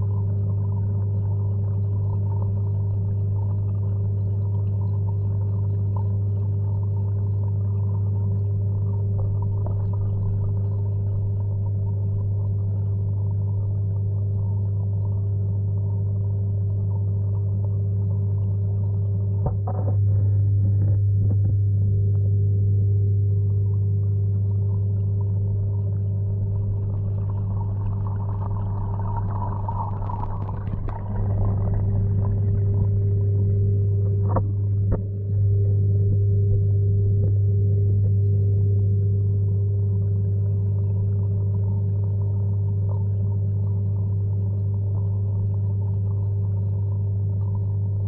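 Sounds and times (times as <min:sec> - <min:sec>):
underwater low hum: 0:00.0 - 0:48.0.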